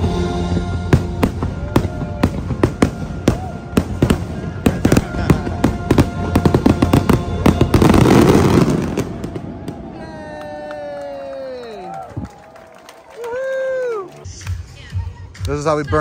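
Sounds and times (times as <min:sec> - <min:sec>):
music soundtrack: 0:00.0 - 0:10.0, 0:14.0 - 0:16.0
fireworks bangs: 0:00.0 - 0:12.5.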